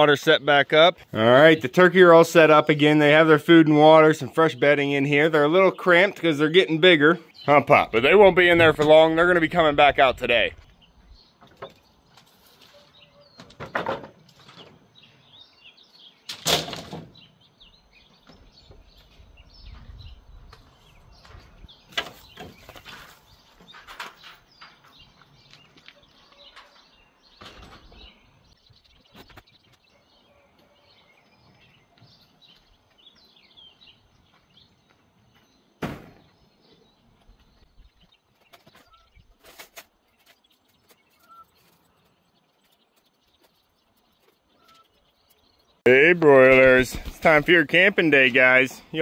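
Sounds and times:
small birds chirping: 0.0s - 49.0s
wooden boards knocking and clattering: 13.4s - 14.8s.

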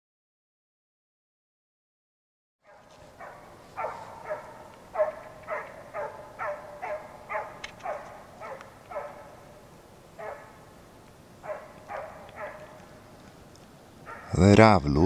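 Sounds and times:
hound baying: 2.6s - 13.4s, 14.0s - 14.5s.

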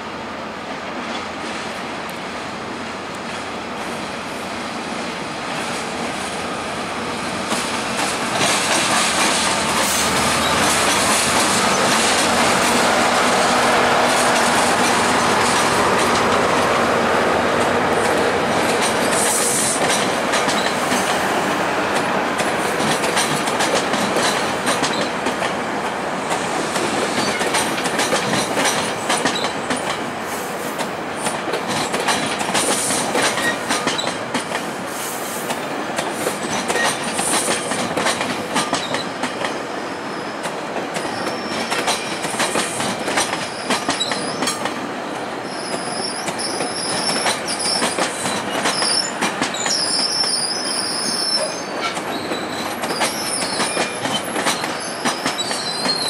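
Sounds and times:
diesel locomotives passing: 0.0s - 56.0s
wheels clicking over rail joints: 7.5s - 12.8s, 17.6s - 21.2s, 22.0s - 25.6s, 26.3s - 30.1s, 30.8s - 34.7s, 35.5s - 39.6s, 40.4s - 44.8s, 45.7s - 56.0s
high wheel squeal: 39.7s - 41.8s, 45.4s - 56.0s.

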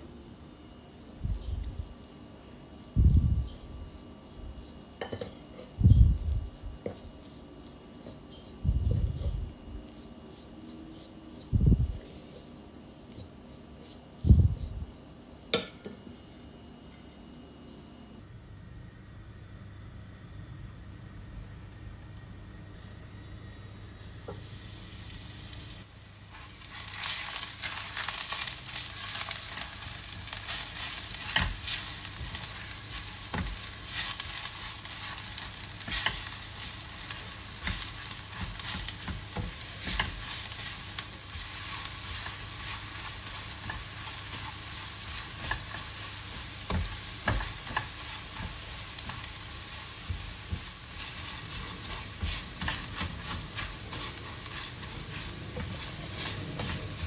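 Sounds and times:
spatula scraping a wok: 1.4s - 15.9s, 24.3s - 57.0s
eggs sizzling in oil: 18.2s - 57.0s
oil hissing in a wok: 18.2s - 57.0s.

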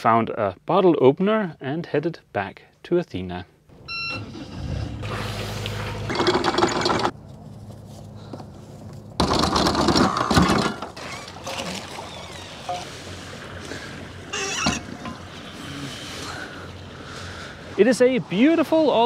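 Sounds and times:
anchor chain rattling: 6.1s - 7.2s.

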